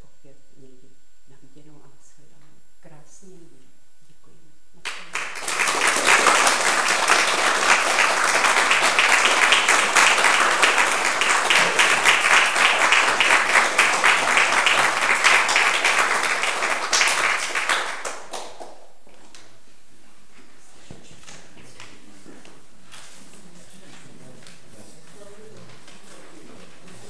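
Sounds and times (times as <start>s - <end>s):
audience applauding: 4.8s - 18.9s.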